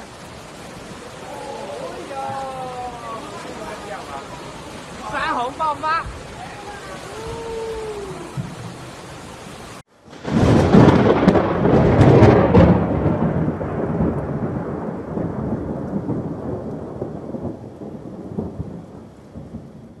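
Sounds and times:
thunderclap with rolling rumble: 0:07.0 - 0:20.0.

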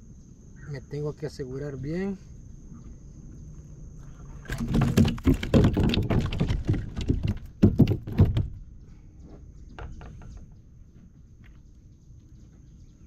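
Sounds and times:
knocks and rattles on plastic kayak: 0:04.4 - 0:08.6, 0:09.6 - 0:10.6.

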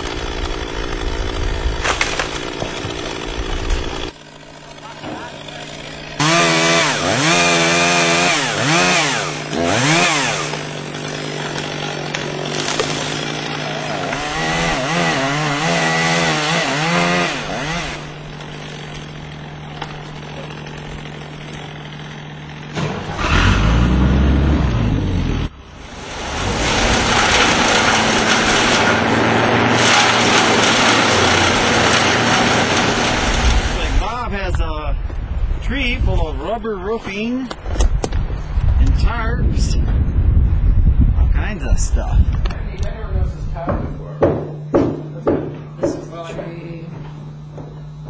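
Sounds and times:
chainsaw revving: 0:00.0 - 0:34.1.

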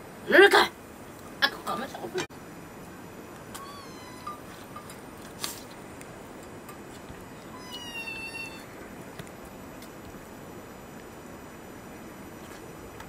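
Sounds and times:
steady background hiss: 0:00.0 - 0:13.0
kitten meowing: 0:03.5 - 0:04.5, 0:07.3 - 0:08.7.

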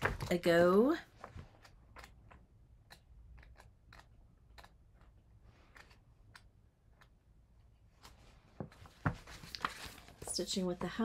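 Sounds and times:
magazine pages turning: 0:08.0 - 0:10.6.

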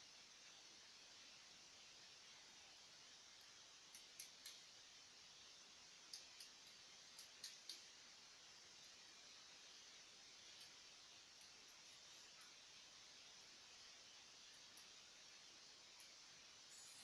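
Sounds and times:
low hiss: 0:00.0 - 0:17.0
faint sharp claw clicks: 0:03.9 - 0:04.7, 0:06.1 - 0:07.9.

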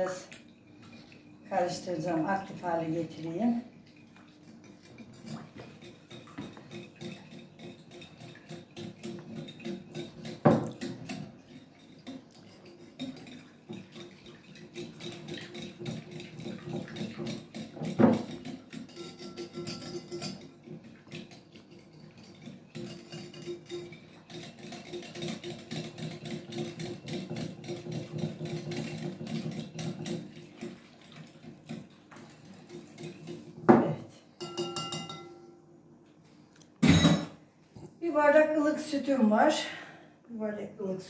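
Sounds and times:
metal utensil clinking glass bowl: 0:04.6 - 0:30.8, 0:34.4 - 0:35.6.

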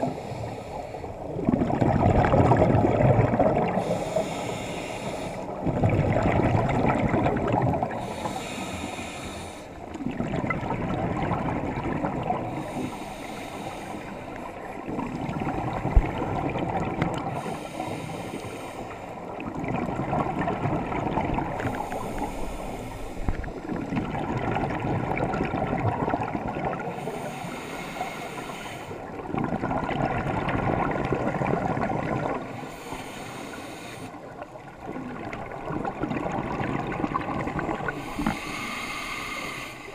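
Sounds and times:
exhaled bubbles gushing underwater: 0:01.0 - 0:28.0, 0:29.0 - 0:33.0, 0:34.1 - 0:39.9
regulator inhalation hiss: 0:03.8 - 0:05.4, 0:08.0 - 0:09.7, 0:12.6 - 0:14.2, 0:27.0 - 0:28.9, 0:32.7 - 0:34.2, 0:37.9 - 0:39.9.

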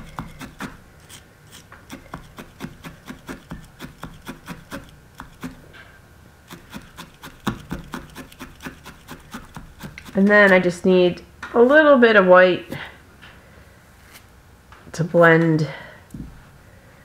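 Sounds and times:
felting needles stabbing wool: 0:00.0 - 0:05.8, 0:06.4 - 0:10.8.

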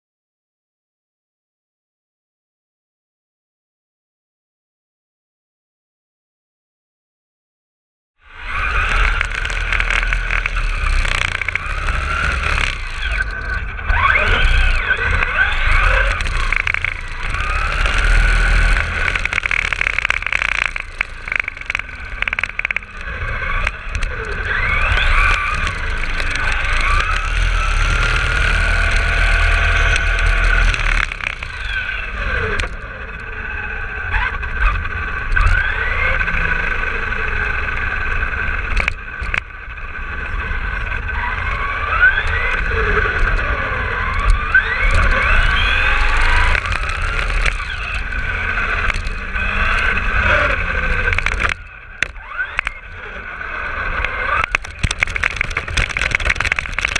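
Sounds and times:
rc car motor whining: 0:08.2 - 0:56.9
tyres and wind rumble: 0:08.4 - 0:56.9.

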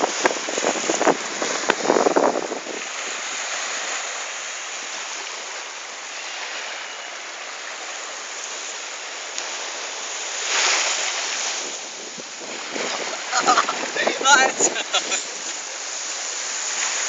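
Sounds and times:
wind buffeting microphone: 0:00.0 - 0:03.8, 0:11.1 - 0:15.4
small waves washing on sand: 0:00.0 - 0:17.0.

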